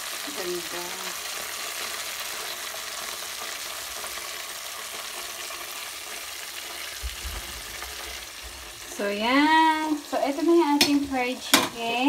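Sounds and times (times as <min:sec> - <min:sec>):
oil sizzling and crackling: 0:00.0 - 0:12.0.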